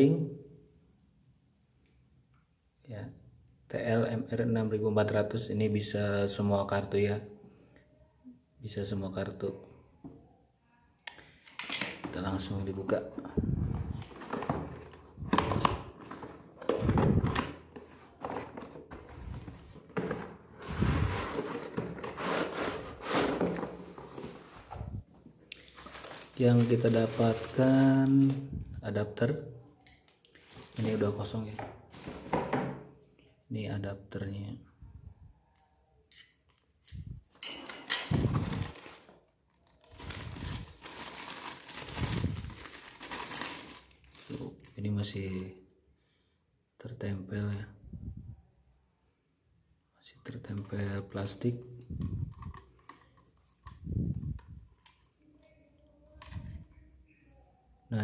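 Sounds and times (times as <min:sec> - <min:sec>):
cardboard scraping and rustling: 0:13.9 - 0:24.9
plastic bag crinkling: 0:25.5 - 0:28.6, 0:30.0 - 0:31.4, 0:37.5 - 0:44.7.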